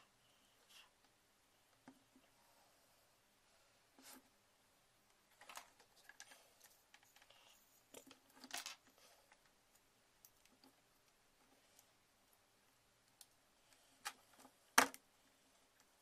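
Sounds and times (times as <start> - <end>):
plastic cable rustling and scratching: 5.3 - 11.9.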